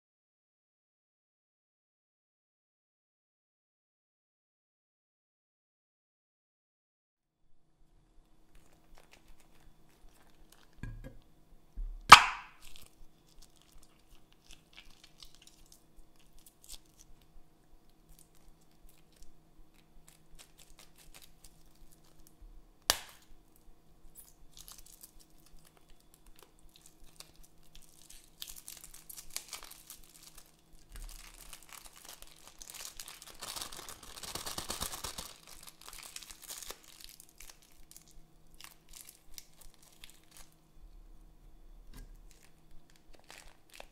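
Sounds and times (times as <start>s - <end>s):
plastic bag crinkling: 8.5s - 10.8s, 18.1s - 22.4s, 24.5s - 40.6s, 42.0s - 43.9s
plastic bag popping: 11.8s - 12.8s, 22.9s - 23.3s, 28.4s - 40.5s, 41.9s - 43.9s.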